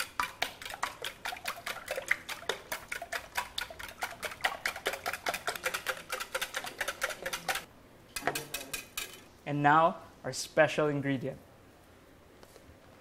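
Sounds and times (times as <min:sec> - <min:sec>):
whisk clicking against bowl: 0:00.0 - 0:09.2.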